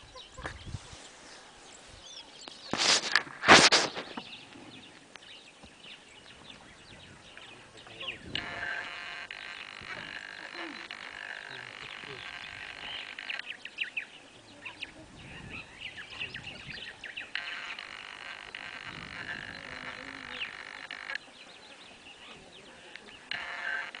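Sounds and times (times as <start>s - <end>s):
frogs trilling: 7.9s - 13.8s, 17.1s - 21.3s, 22.9s - 24.0s
short chirping calls: 14.7s - 21.4s.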